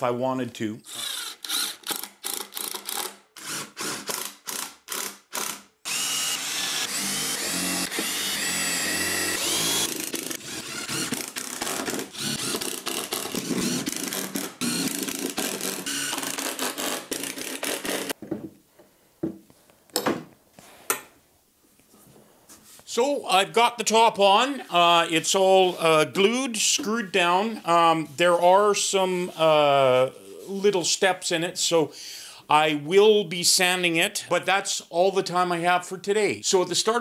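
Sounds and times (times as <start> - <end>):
cordless drill driving screws: 0.9 - 18.2.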